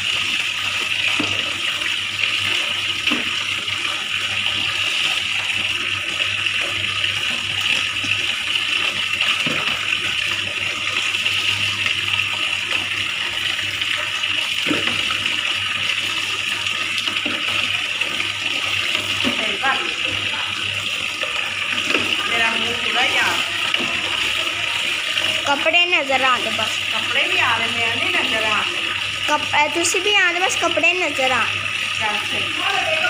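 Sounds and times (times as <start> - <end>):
tap water running into basin: 0.0 - 33.0
water splashing: 0.0 - 33.0.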